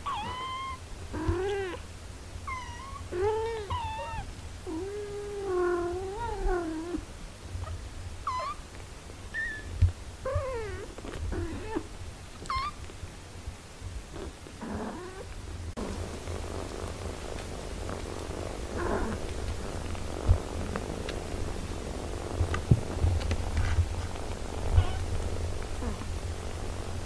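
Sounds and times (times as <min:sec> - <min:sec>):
kittens mewing: 0:24.6 - 0:25.2.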